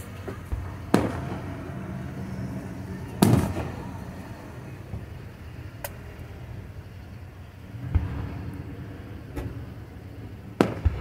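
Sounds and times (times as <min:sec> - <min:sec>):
small firework crack: 0:00.0 - 0:06.3, 0:10.5 - 0:11.0
firework shell boom: 0:00.3 - 0:05.2.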